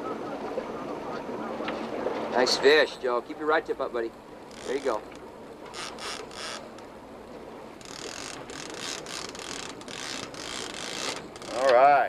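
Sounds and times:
fishing reel ratcheting: 5.7s - 6.7s, 7.8s - 11.8s.

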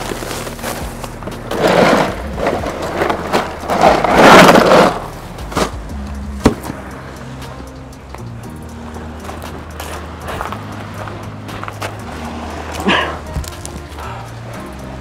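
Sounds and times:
ice and bottles rattling in cooler: 0.0s - 5.8s.

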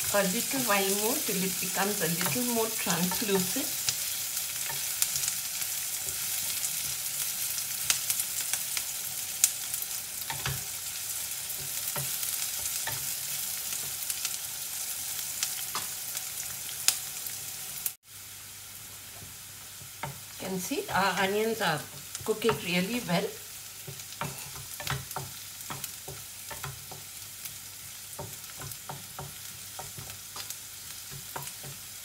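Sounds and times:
onions sizzling in oil: 0.0s - 32.0s
wooden spatula scraping a pan: 23.8s - 27.1s.

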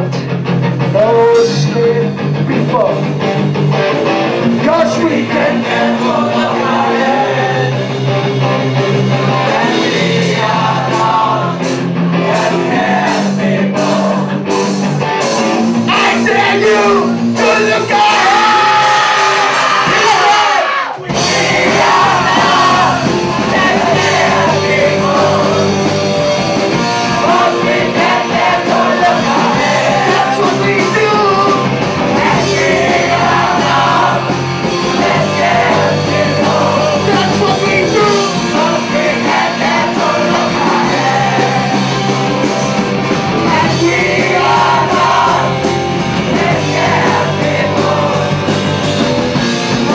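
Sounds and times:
live rock band playing: 0.0s - 49.9s
voices singing and shouting: 4.6s - 14.8s, 15.8s - 49.9s.

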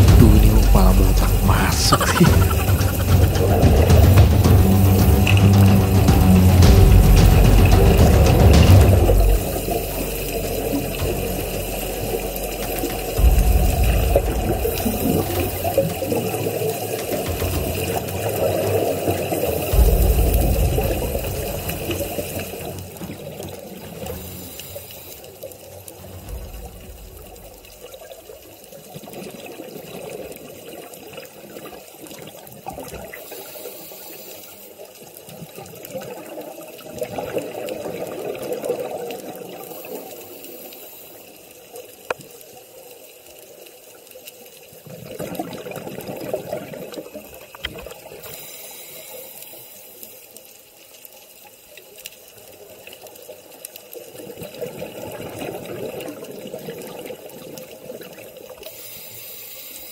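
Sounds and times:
bubbling underwater exhalations: 0.0s - 5.3s
regulator inhalation hiss: 24.2s - 25.4s, 48.3s - 50.2s, 58.7s - 59.9s.

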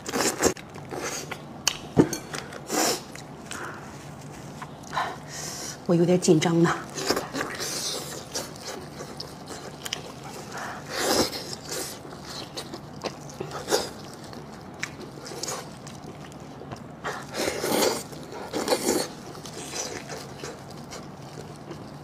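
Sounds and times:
person chewing food: 6.8s - 22.0s.

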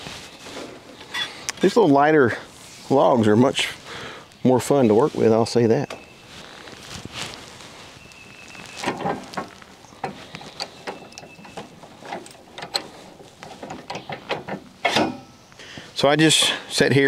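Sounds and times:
metal clicks knocks and scrapes: 8.8s - 15.3s.

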